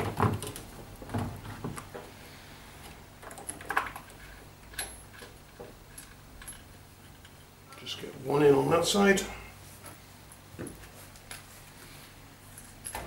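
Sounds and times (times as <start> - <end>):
parts clicking and knocking: 0.0 - 2.1, 2.8 - 7.9.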